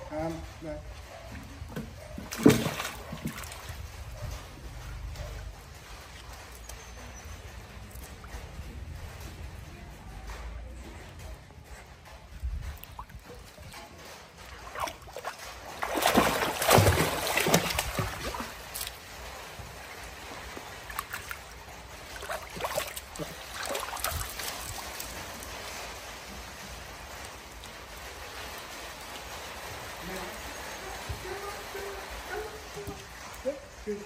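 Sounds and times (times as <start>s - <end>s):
water splashing in a pool: 1.0s - 9.8s, 12.2s - 33.8s
water trickling: 12.6s - 33.4s.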